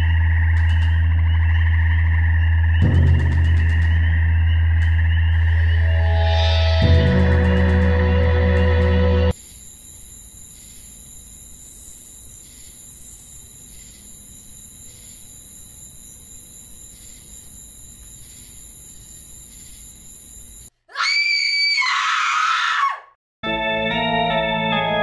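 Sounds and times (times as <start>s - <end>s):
steady hiss: 9.3s - 20.7s
girl screaming: 20.9s - 23.1s.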